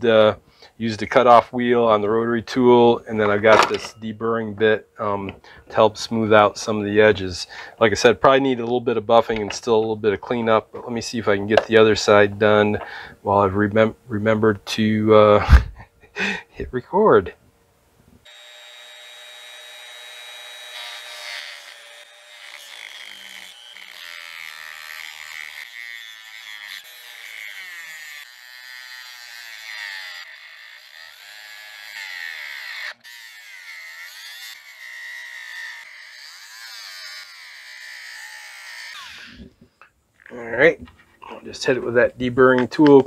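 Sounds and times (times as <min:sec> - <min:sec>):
rotary tool cutting metal: 0:03.2 - 0:04.0, 0:18.3 - 0:39.4.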